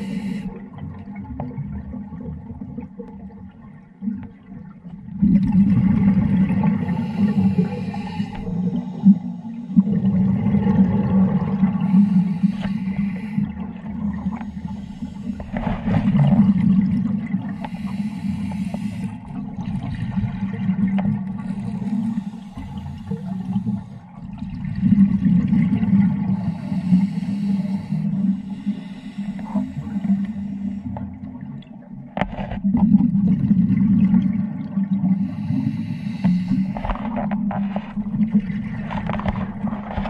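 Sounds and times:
diver breathing through regulator: 0:00.0 - 0:00.7, 0:06.7 - 0:10.1, 0:11.6 - 0:16.3, 0:17.4 - 0:19.4, 0:21.1 - 0:24.2, 0:26.2 - 0:31.2, 0:35.1 - 0:37.9
exhaled bubbles rushing: 0:00.5 - 0:12.4, 0:13.4 - 0:17.6, 0:19.2 - 0:26.6, 0:30.9 - 0:35.8, 0:36.7 - 0:40.0.

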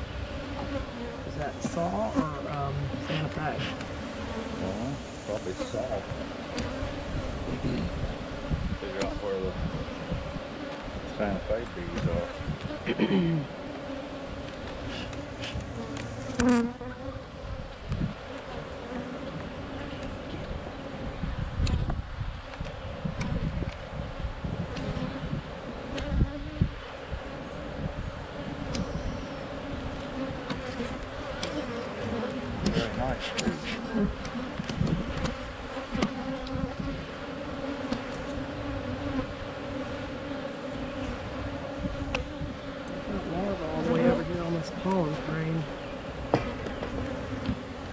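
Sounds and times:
honeybees humming: 0:00.0 - 0:21.5, 0:24.6 - 0:47.9
hive tool clicking on wooden frames: 0:30.0 - 0:36.6, 0:37.8 - 0:38.4.

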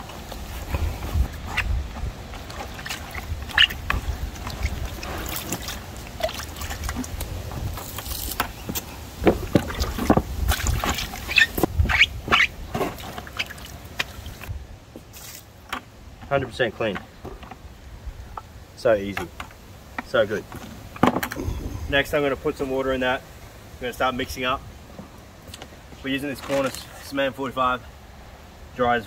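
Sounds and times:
sponge scrubbing in plastic bucket: 0:00.1 - 0:14.5.

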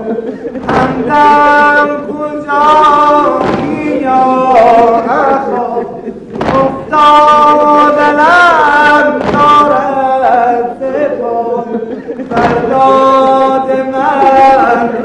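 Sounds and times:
person chanting a lament: 0:00.0 - 0:15.0
sharp knocks: 0:00.6 - 0:01.7, 0:02.8 - 0:05.1, 0:06.3 - 0:07.8, 0:09.0 - 0:09.9, 0:12.2 - 0:13.3.

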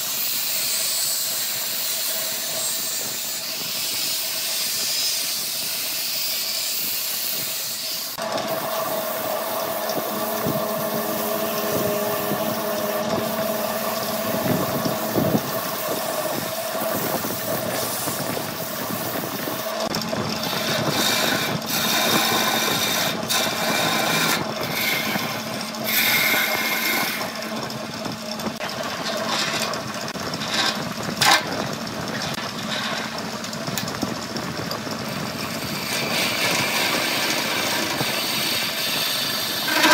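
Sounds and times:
angle grinder sanding wood: 0:00.0 - 0:31.5, 0:35.4 - 0:39.9
turning tool scraping wood: 0:00.0 - 0:33.9, 0:35.4 - 0:39.9
drill bit boring into wood: 0:06.4 - 0:31.3, 0:35.3 - 0:39.9
wood lathe humming: 0:07.5 - 0:39.9.

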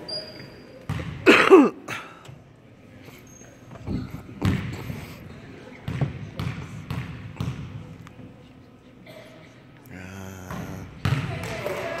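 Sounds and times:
basketball bouncing on hardwood floor: 0:05.9 - 0:07.7.

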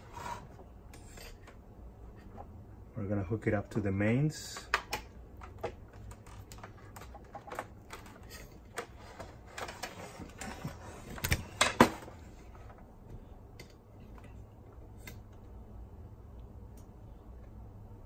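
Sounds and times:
handling clicks and rustling: 0:04.5 - 0:12.9.

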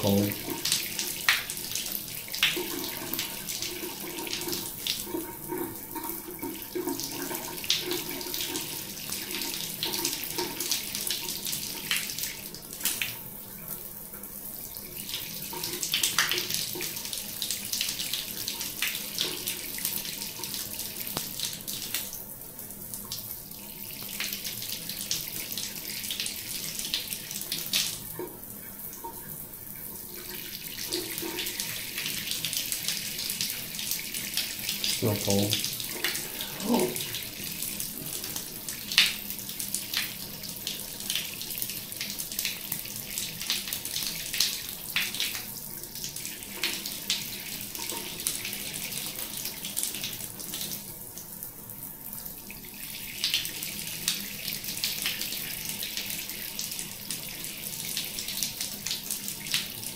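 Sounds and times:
shower water splashing: 0:00.0 - 0:59.9.

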